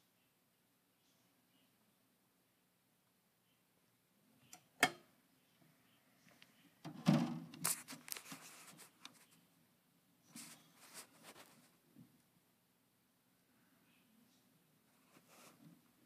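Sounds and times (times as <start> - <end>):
rustling and crackling: 6.2 - 9.5, 10.2 - 12.2, 14.9 - 16.0.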